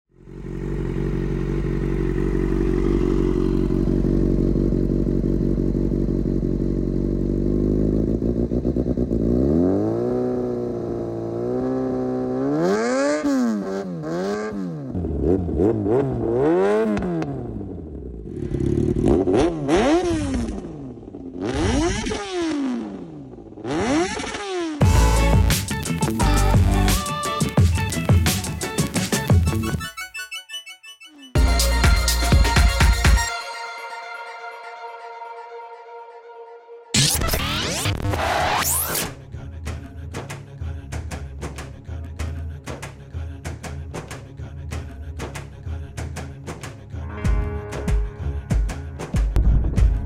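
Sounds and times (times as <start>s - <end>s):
motorcycle engine idling and revving: 0.1s - 29.8s.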